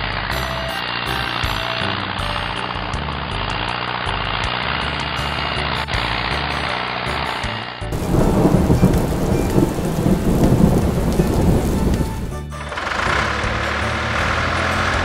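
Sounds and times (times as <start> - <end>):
heavy rain: 7.2 - 15.0
thunder rumbling: 7.9 - 12.4.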